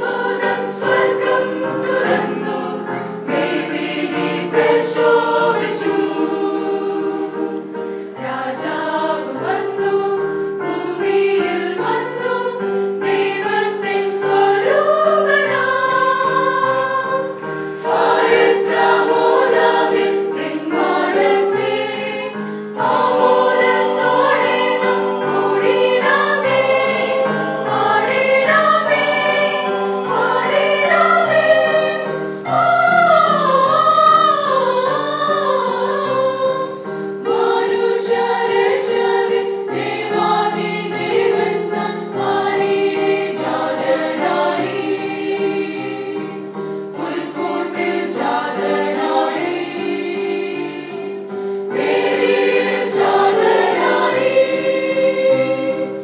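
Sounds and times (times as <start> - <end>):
keyboard: 0.0 - 56.0
mixed choir singing carol: 0.0 - 56.0.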